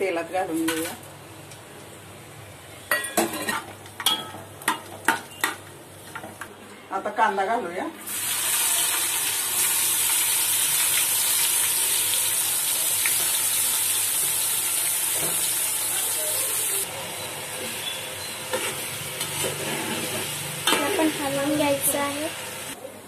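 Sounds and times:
onions sizzling in hot oil: 8.0s - 22.8s.

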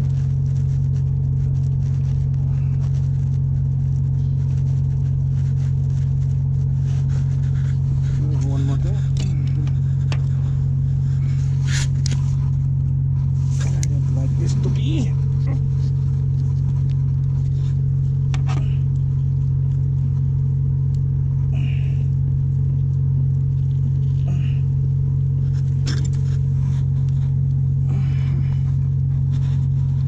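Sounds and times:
ship engine drone: 23.5s - 29.9s.

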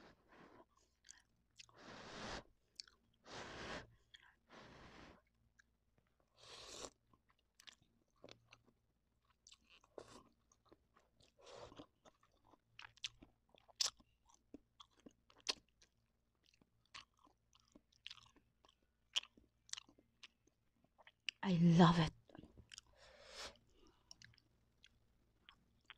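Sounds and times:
wet chewing and mouth smacks: 0.9s - 1.8s, 2.7s - 3.1s, 6.7s - 21.4s, 22.3s - 25.9s.

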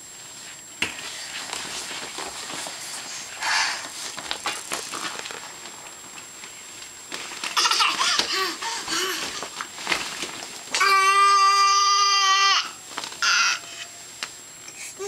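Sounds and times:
vinyl rubbing and rustling: 0.0s - 10.8s
toddler squealing and grunting: 10.8s - 13.7s.

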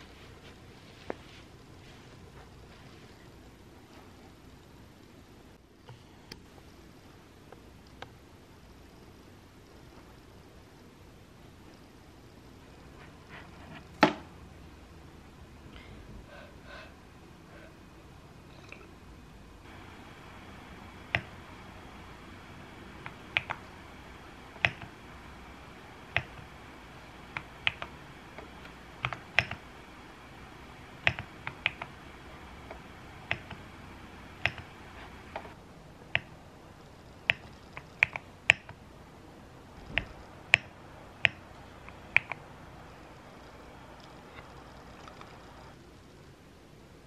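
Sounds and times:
faint room hiss: 0.0s - 47.0s
keyboard and mouse clicks: 21.1s - 21.4s, 23.0s - 23.7s, 24.5s - 25.0s, 26.1s - 26.5s, 27.3s - 29.7s, 31.0s - 32.0s, 32.6s - 33.6s, 34.3s - 36.4s, 37.2s - 38.8s, 39.8s - 42.5s.

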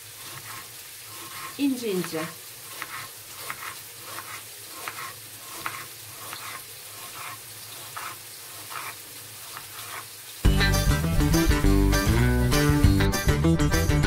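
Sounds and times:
meat sizzling in a pan: 0.0s - 13.0s
knife chopping on cutting board: 0.2s - 10.1s
acoustic guitar music: 10.4s - 14.0s.

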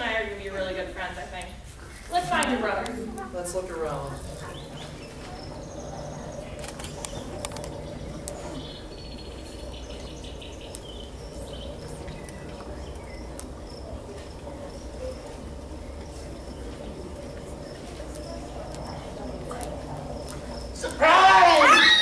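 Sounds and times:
low room hum: 0.0s - 22.0s
sharp clicks: 6.4s - 8.9s.

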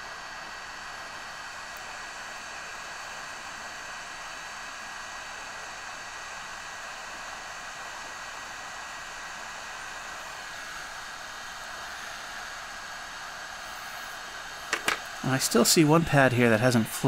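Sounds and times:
faint whine in air flow: 0.0s - 17.0s
hot air blower hissing: 0.0s - 17.0s.

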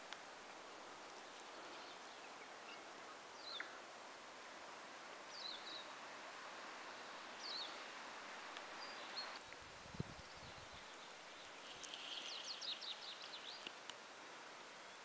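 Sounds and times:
steady forest hiss: 0.0s - 15.0s.

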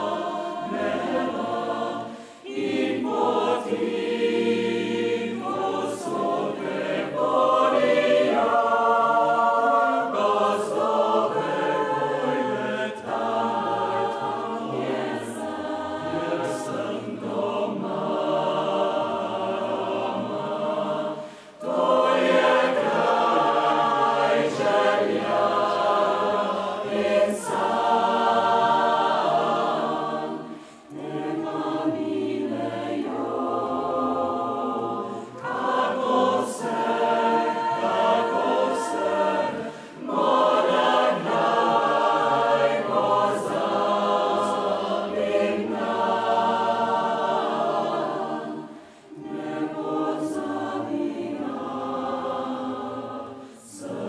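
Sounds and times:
mixed choir singing: 0.0s - 54.0s.

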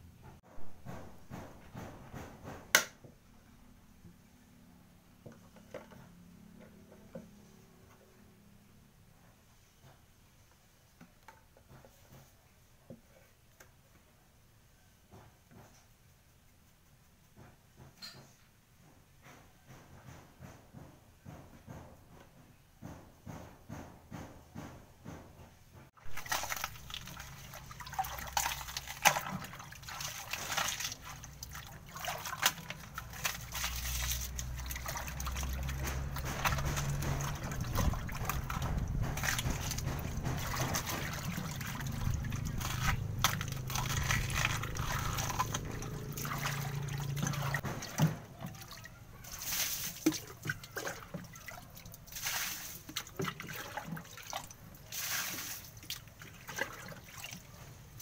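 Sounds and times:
water sloshing and splashing: 26.0s - 58.0s
water dripping: 26.2s - 47.6s.

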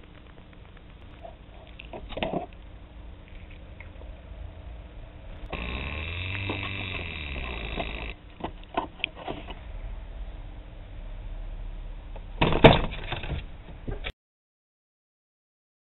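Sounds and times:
steady buzzing noise: 0.0s - 14.0s
low hum: 0.0s - 14.1s.

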